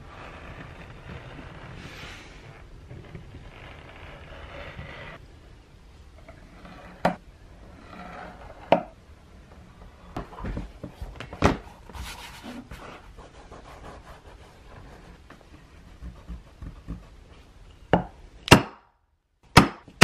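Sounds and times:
leather being folded and rubbed: 0.0s - 2.7s, 10.9s - 17.5s.

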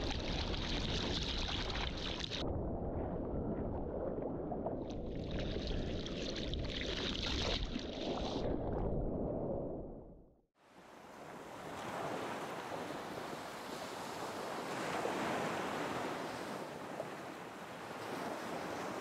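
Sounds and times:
wind rumble on microphone: 0.0s - 6.8s
water noise: 0.0s - 19.0s.

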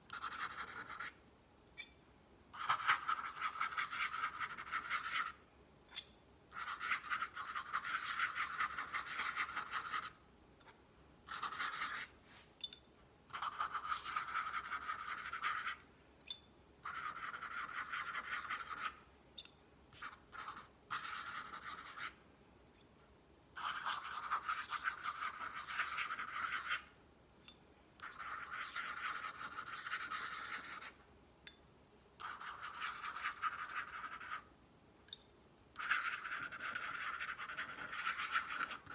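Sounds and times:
pen nib scratching on paper: 0.1s - 1.2s, 2.5s - 5.4s, 6.0s - 12.5s, 13.3s - 15.8s, 16.8s - 22.2s, 23.6s - 26.9s, 28.0s - 31.0s, 32.2s - 34.5s, 35.8s - 38.9s.

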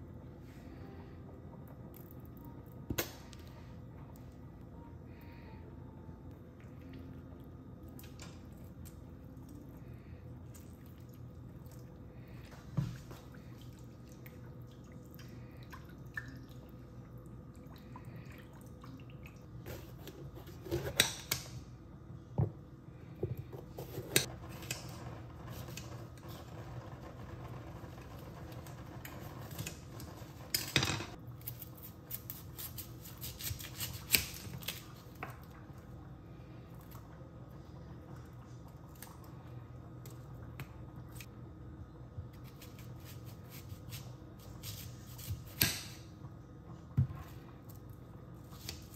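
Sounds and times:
low steady hum: 0.0s - 48.9s
knife cutting vegetables on countertop: 19.7s - 21.5s, 23.5s - 25.0s, 29.1s - 35.0s, 42.3s - 46.0s.

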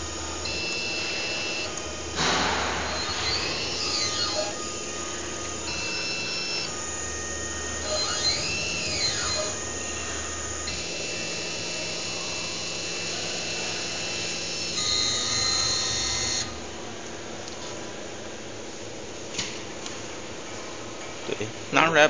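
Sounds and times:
hot wire cutter motor whine: 0.0s - 16.9s.

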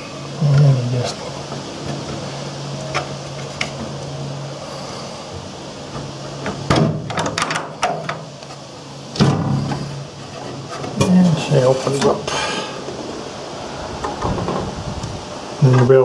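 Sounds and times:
metal latch clicking and rattling: 6.5s - 8.2s.

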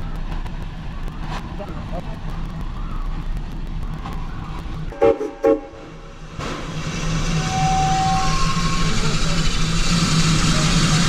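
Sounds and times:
train running noise: 0.0s - 11.0s
steam locomotive whistle toots: 4.9s - 6.0s, 7.2s - 9.6s.

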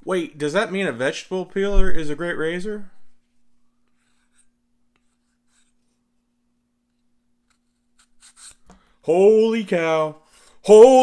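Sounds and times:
vegetable peeler scraping cucumber: 7.5s - 8.6s.

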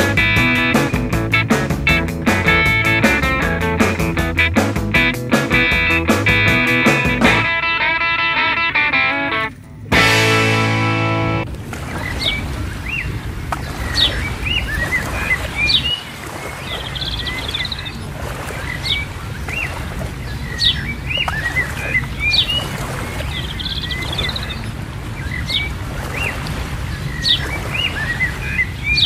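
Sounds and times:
birds chirping and trilling: 18.6s - 26.3s, 26.9s - 29.0s.

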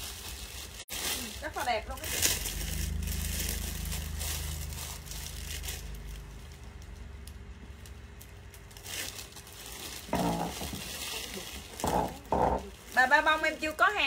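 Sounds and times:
plastic bags crinkling: 0.0s - 14.0s
low hum: 1.8s - 8.6s.

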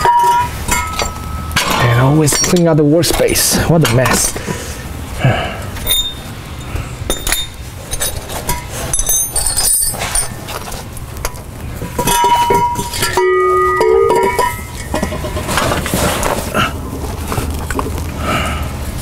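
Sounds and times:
struck metal ringing: 0.0s - 4.2s, 5.8s - 10.4s, 11.8s - 15.6s
metal tools clinking: 0.0s - 4.3s, 5.8s - 16.3s
held tones: 12.0s - 15.1s.

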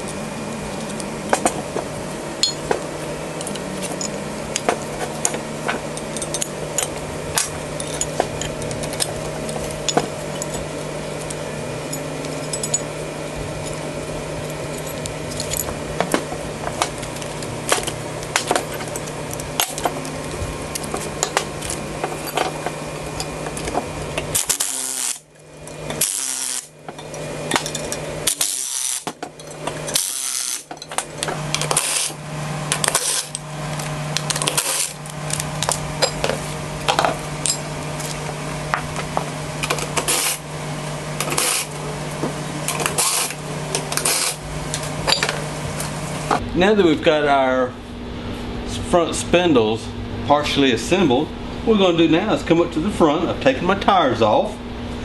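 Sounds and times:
metal tools clinking: 0.0s - 40.4s, 42.6s - 46.0s
steady low hum: 0.0s - 55.0s
impact driver bursts: 24.4s - 25.2s, 26.0s - 26.7s, 29.9s - 30.7s, 31.5s - 33.3s, 41.2s - 41.8s, 42.8s - 44.4s.

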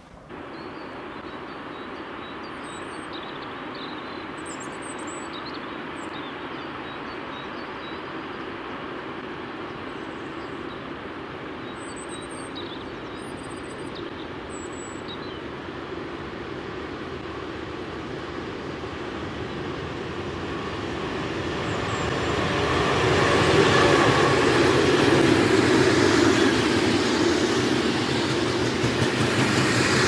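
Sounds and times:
diesel freight train rumble: 15.7s - 30.0s.

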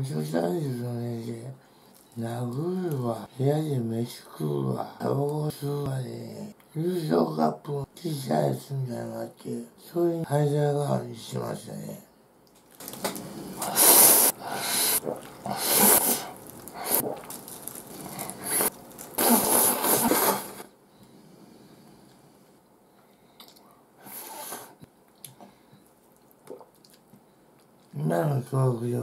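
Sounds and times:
man chewing quietly: 12.5s - 28.0s
man slurping noodles: 13.2s - 17.4s, 18.2s - 20.7s.

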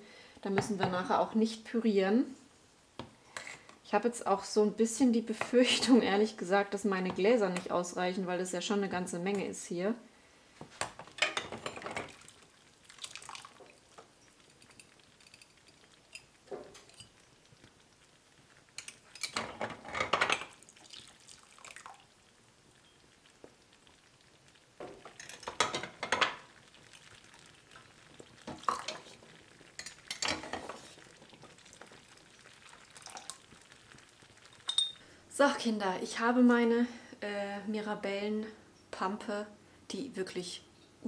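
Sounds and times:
jam simmering: 10.4s - 36.4s
spoon scraping a cooking pot: 14.1s - 17.3s, 18.7s - 20.5s, 28.5s - 31.1s.

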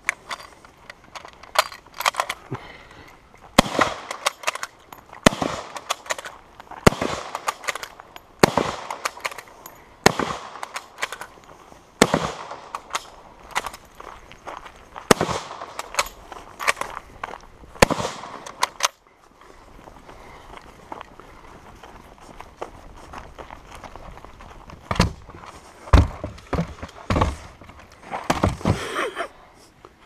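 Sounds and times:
rifle shots echoing: 3.6s - 9.4s, 10.0s - 11.3s, 12.0s - 13.2s, 15.1s - 16.8s, 17.8s - 18.9s.

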